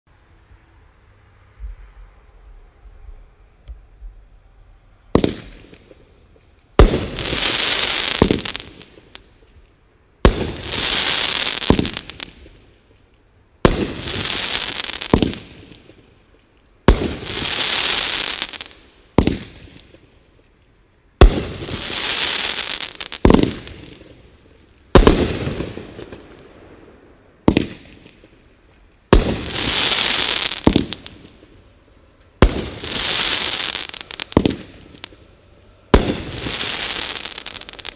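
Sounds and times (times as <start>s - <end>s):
firework hiss: 6.8s - 9.5s, 10.2s - 12.7s, 13.6s - 16.0s, 16.9s - 20.0s, 21.2s - 26.2s, 29.1s - 31.6s, 32.4s - 37.9s
firework bang: 35.9s - 37.9s.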